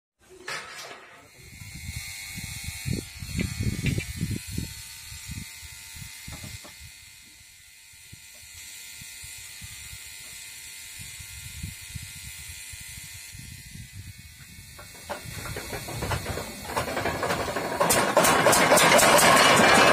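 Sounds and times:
knocks and clunks on engine: 0:14.8 - 0:19.9.

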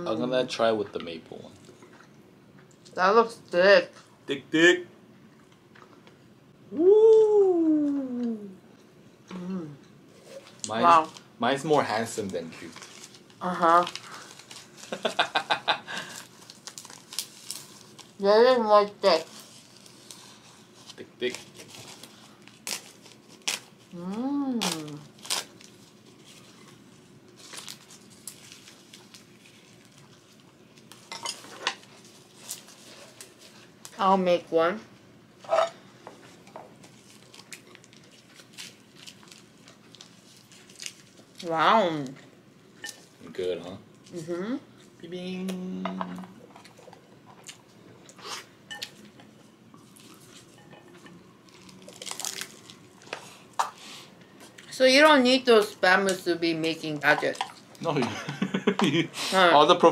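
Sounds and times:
person humming: 0:06.7 - 0:08.6, 0:09.3 - 0:09.8, 0:24.0 - 0:25.0
dried seaweed crackling: 0:10.6 - 0:31.1, 0:36.8 - 0:42.1, 0:51.4 - 0:53.4
crispy seaweed crunching bite: 0:51.5 - 0:52.8.

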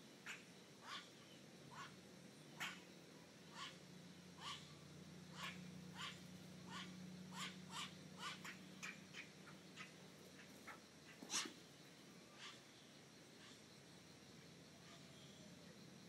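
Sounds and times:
low steady hum: 0:00.0 - 0:16.0
short sharp animal calls: 0:00.2 - 0:01.1, 0:02.6 - 0:02.9, 0:03.5 - 0:03.8, 0:04.4 - 0:11.6, 0:12.4 - 0:12.6.

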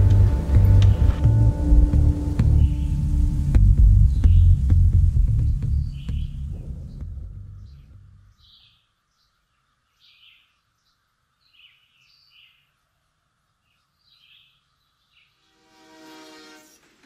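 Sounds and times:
train horn: 0:15.4 - 0:17.0.

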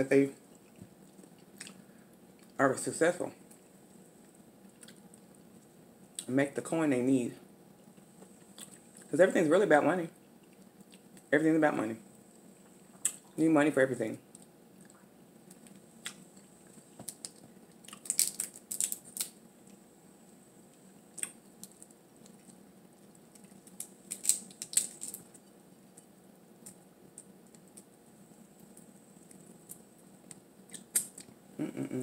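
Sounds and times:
crab shell crackling: 0:14.3 - 0:19.9, 0:20.6 - 0:31.3.

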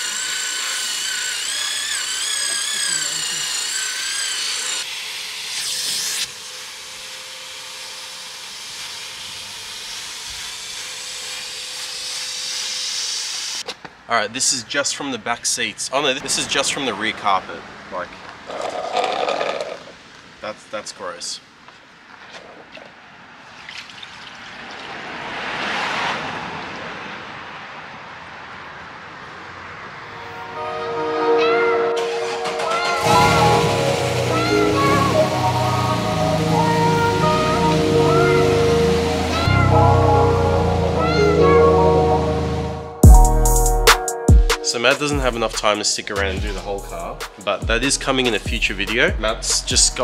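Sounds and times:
carpet extractor sucking: 0:01.5 - 0:04.1.

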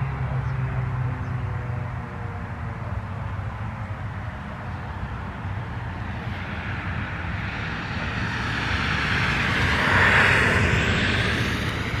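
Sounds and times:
steady low rumble: 0:03.9 - 0:12.0.

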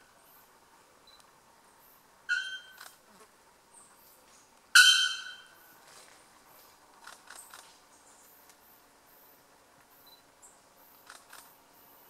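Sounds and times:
bellbird calls: 0:02.3 - 0:02.8, 0:04.8 - 0:05.6.

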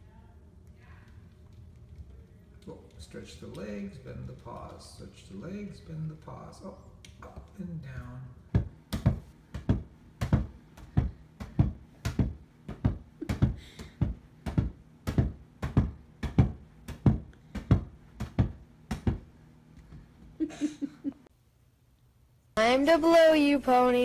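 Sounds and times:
beach ball bouncing: 0:08.5 - 0:19.3.

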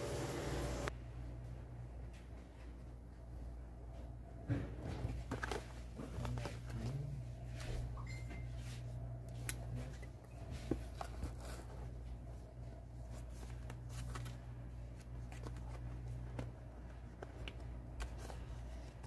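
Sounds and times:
steady low hum: 0:00.0 - 0:19.0
cardboard packaging rustling: 0:10.4 - 0:19.0.

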